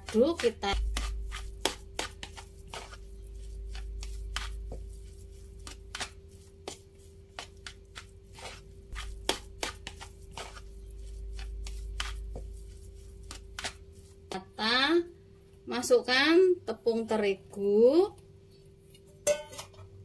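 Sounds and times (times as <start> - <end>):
hand mixing crumbly food in bowl: 0.0 - 15.1
faint steady hum: 0.0 - 20.0.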